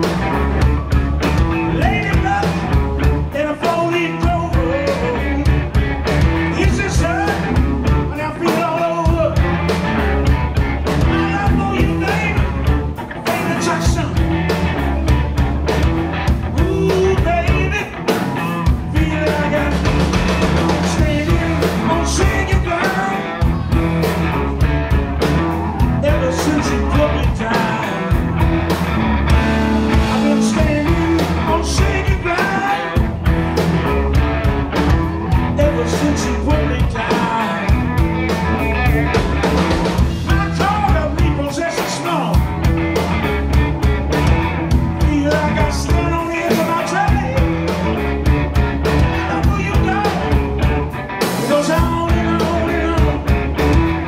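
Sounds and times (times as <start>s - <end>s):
live rock band playing: 0.0s - 54.0s
man singing: 1.5s - 9.7s, 10.9s - 14.6s, 16.5s - 24.5s, 25.6s - 28.3s, 29.4s - 33.3s, 34.9s - 39.2s, 39.9s - 42.6s, 44.9s - 48.0s, 49.0s - 50.8s, 51.4s - 53.9s.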